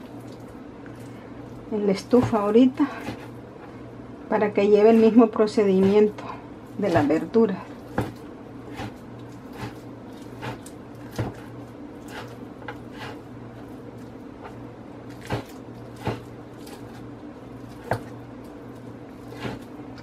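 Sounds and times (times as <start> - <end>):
steady low hum: 0.0 - 20.0
knife chopping on wooden board: 2.1 - 3.3, 7.9 - 13.2, 15.1 - 16.8, 17.7 - 18.1, 19.3 - 19.7.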